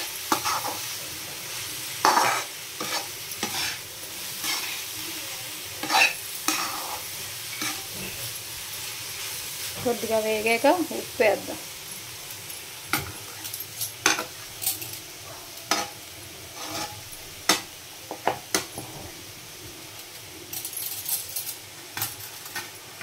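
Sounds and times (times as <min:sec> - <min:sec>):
spatula scraping a pan: 0:00.0 - 0:05.0, 0:05.8 - 0:08.4, 0:15.7 - 0:17.7
faint sizzle of frying: 0:00.0 - 0:23.0.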